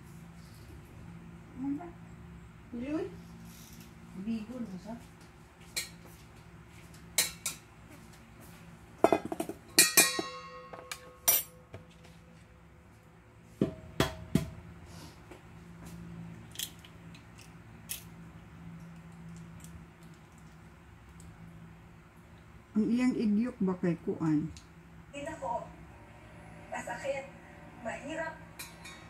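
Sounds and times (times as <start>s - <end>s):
metal pots and utensils clinking: 9.0s - 11.6s, 28.6s - 29.0s.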